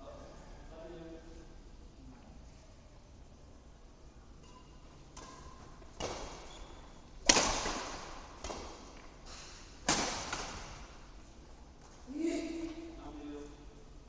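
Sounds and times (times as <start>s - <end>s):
badminton racket hitting shuttlecock: 5.1s - 10.9s.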